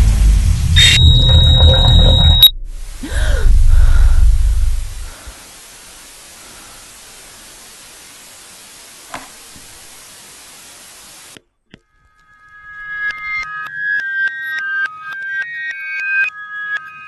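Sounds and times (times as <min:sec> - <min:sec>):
television static hiss: 0:05.0 - 0:11.4.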